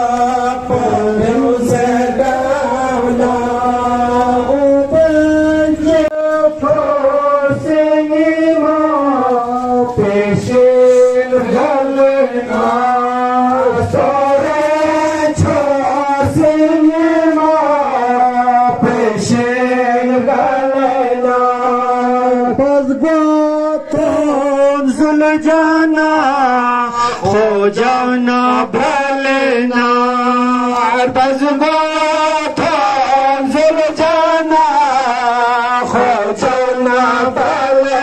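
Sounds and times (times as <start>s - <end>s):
low background hum: 0.0s - 24.9s
man chanting a lament: 0.0s - 38.0s.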